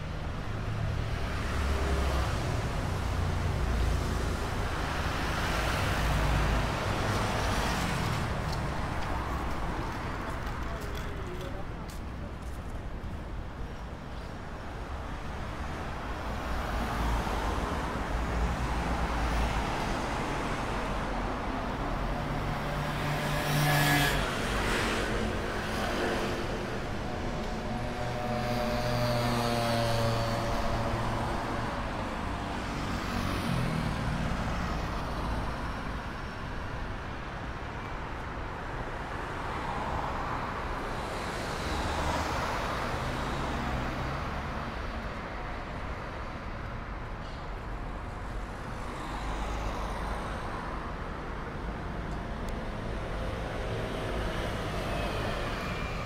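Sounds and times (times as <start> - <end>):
hum of passing cars: 14.8 - 38.2.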